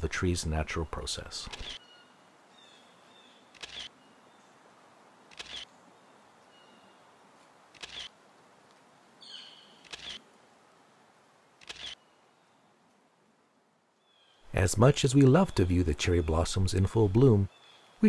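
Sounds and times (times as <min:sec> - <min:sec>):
low steady hiss: 0:00.0 - 0:18.0
camera shutter clicks: 0:01.5 - 0:01.8, 0:03.5 - 0:03.9, 0:05.3 - 0:05.7, 0:07.7 - 0:08.1, 0:09.8 - 0:10.2, 0:11.6 - 0:12.0
faint bird chirps: 0:05.4 - 0:07.2, 0:09.2 - 0:10.2.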